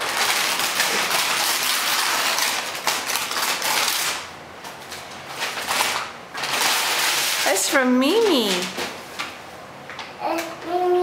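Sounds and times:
wrapping paper crinkling and tearing: 0.0 - 4.3, 4.9 - 8.9.

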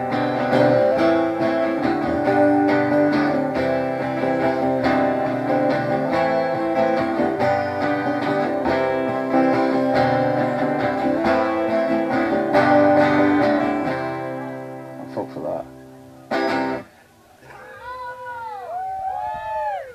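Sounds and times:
acoustic guitars playing: 0.0 - 18.7.

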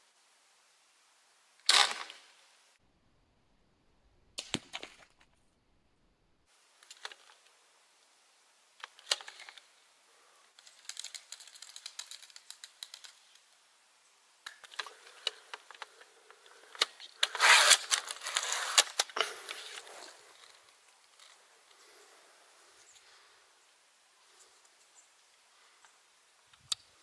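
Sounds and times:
slingshot mechanism clicking: 10.6 - 13.4.

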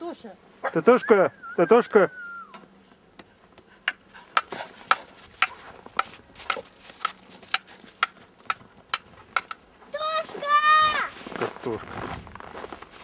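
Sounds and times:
footsteps crunching in snow: 4.5 - 8.3, 9.1 - 13.0.

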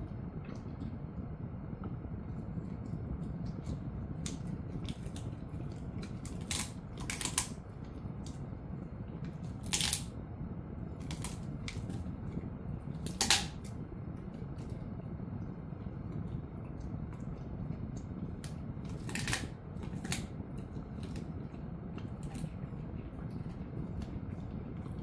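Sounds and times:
low steady hum: 0.0 - 25.0
dog gnawing bone: 3.1 - 8.4, 11.0 - 13.7, 16.1 - 25.0
bone crunching: 4.2 - 7.6, 9.6 - 10.1, 11.0 - 12.1, 18.9 - 20.3.

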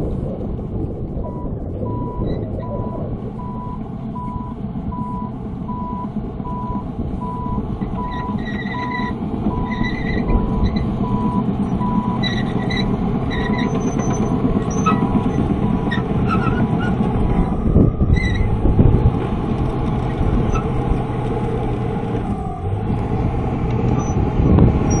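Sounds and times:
bulldozer diesel engine running: 0.0 - 25.0
reversing alarm beeping: 1.3 - 12.8.

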